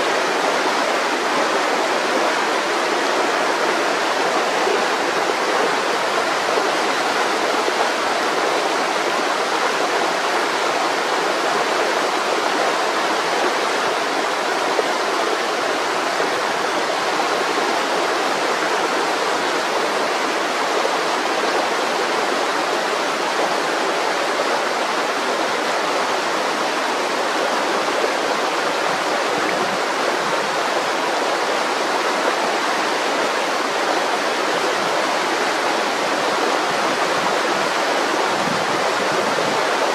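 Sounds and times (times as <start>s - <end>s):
river water rushing: 0.0s - 39.9s.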